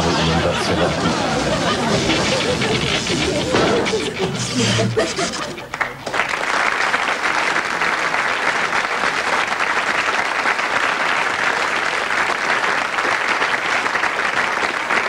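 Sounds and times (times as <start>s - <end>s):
studio audience applauding: 5.5s - 15.0s.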